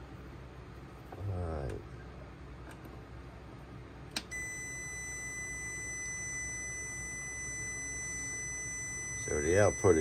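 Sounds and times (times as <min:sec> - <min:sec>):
click: 0:04.1 - 0:04.3
multimeter continuity beep: 0:04.2 - 0:10.0.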